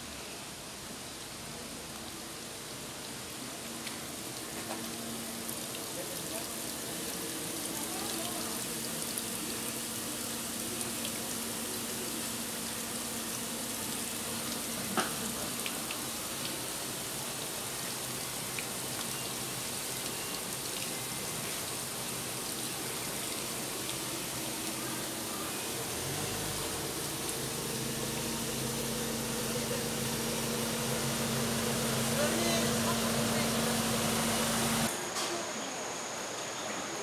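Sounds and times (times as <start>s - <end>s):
water bubbling in fish tanks: 1.7s - 34.9s
low steady hum: 20.0s - 34.9s.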